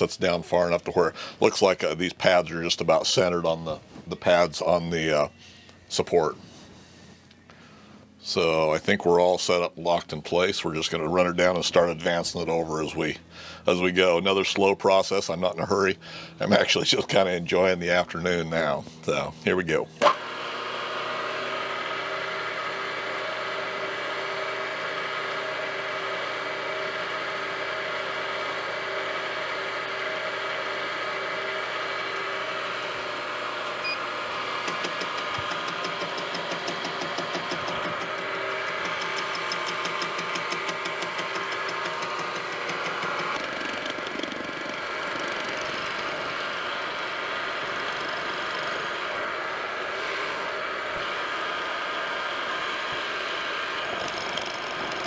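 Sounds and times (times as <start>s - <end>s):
milling machine motor whine: 20.0s - 55.0s
fast ticking of cutting: 29.6s - 46.8s, 47.5s - 49.1s, 53.9s - 55.0s.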